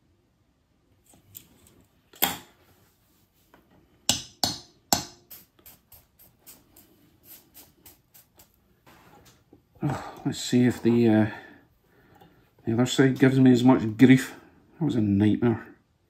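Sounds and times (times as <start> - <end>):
metal tools on workbench: 1.0 - 2.7, 3.5 - 7.0.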